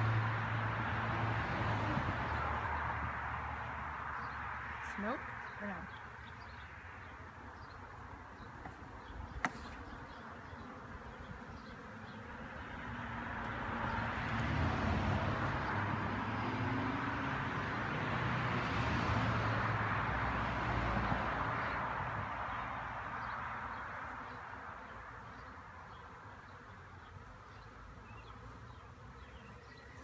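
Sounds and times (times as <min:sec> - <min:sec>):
honeybees buzzing: 0:00.4 - 0:19.0, 0:19.7 - 0:30.0.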